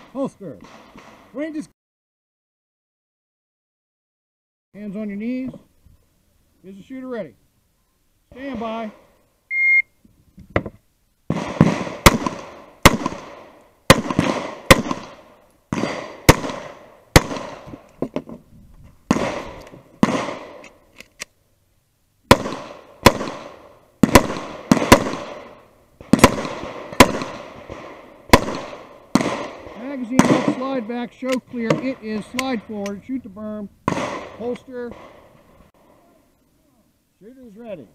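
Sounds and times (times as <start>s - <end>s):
pistol shots with echo: 11.3s - 17.7s, 19.1s - 20.6s, 22.3s - 33.0s, 33.9s - 35.5s.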